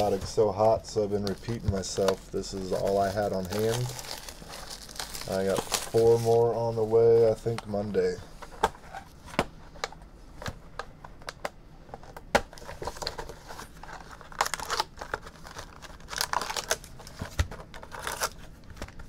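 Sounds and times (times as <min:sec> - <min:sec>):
foil wrappers crinkling: 0:00.0 - 0:08.2, 0:12.7 - 0:19.0.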